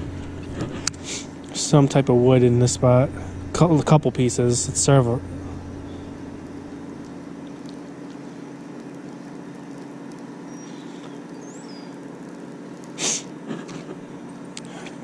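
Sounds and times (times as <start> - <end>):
low motor hum: 0.0 - 15.0
bird chirp: 5.4 - 6.7, 10.4 - 12.0
loud hiss: 13.0 - 13.3.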